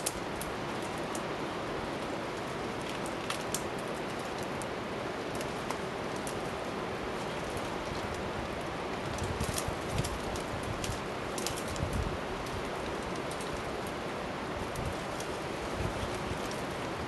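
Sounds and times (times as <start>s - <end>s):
rain on wet foliage: 0.0s - 17.0s
twigs and branches snapping: 2.4s - 6.5s, 7.2s - 14.0s.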